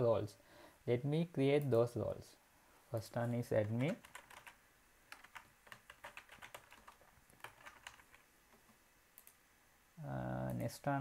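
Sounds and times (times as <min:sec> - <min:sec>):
typing on computer keyboard: 0:03.6 - 0:08.2.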